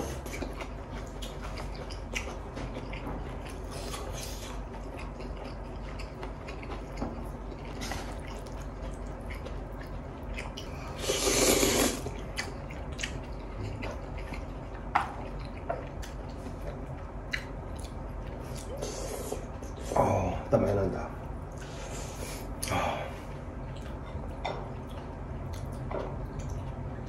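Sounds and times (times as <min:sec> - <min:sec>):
chewing and wet smacking: 0:00.0 - 0:19.9, 0:21.2 - 0:27.0
slurping noodles: 0:10.9 - 0:12.2, 0:18.6 - 0:20.0.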